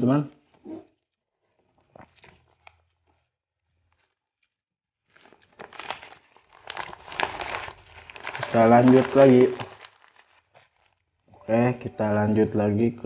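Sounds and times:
paper wrapper crumpling: 1.6s - 4.2s, 5.0s - 11.3s.

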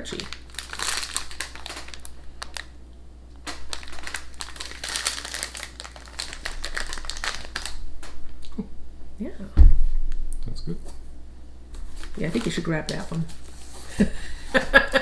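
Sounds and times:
plastic wrapper crinkling: 0.0s - 2.8s, 3.4s - 8.4s, 11.8s - 13.6s.

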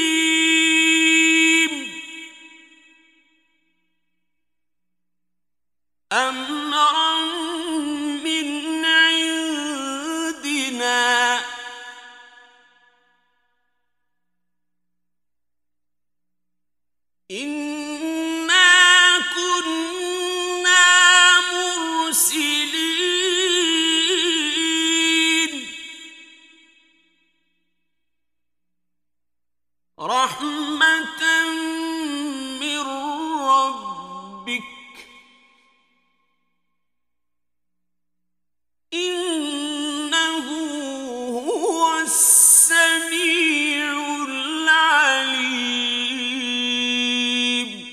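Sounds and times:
man chanting: 0.0s - 2.5s, 6.1s - 12.6s, 17.3s - 26.2s, 30.0s - 35.3s, 39.0s - 47.9s.

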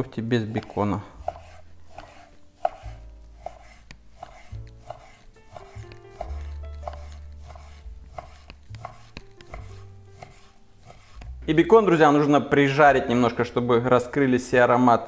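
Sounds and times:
background music: 0.0s - 15.0s
knife slicing bacon: 0.5s - 11.4s
knife knocking on wooden board: 1.2s - 10.4s.

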